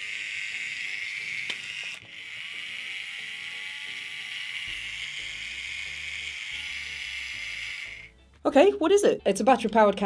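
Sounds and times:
can opener motor whirring: 0:00.0 - 0:08.2
background music: 0:02.0 - 0:10.0.

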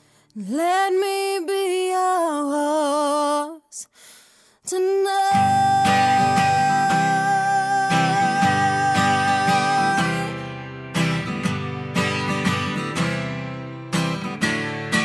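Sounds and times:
woman singing with vibrato: 0:00.4 - 0:04.0, 0:04.6 - 0:10.6
pop-rock band with strummed guitar: 0:05.4 - 0:15.0.

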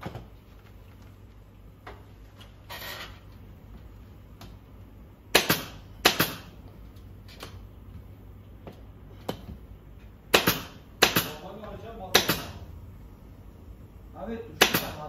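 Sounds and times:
pneumatic staple gun firing: 0:05.4 - 0:06.5.

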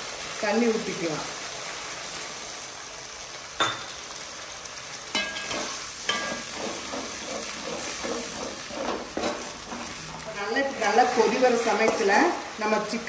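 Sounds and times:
sauce sizzling in pan: 0:00.0 - 0:13.0
ladle scraping pan: 0:05.2 - 0:12.4.

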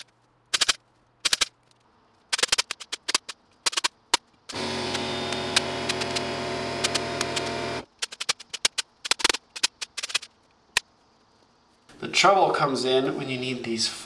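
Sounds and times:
machine hum: 0:04.5 - 0:08.0.

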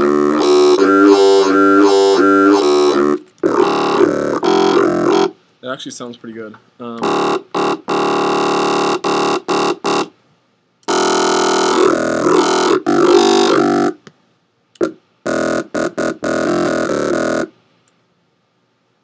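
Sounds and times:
distorted synth bass stabs: 0:00.0 - 0:05.4, 0:07.0 - 0:10.1, 0:10.9 - 0:14.0, 0:14.8 - 0:17.5.

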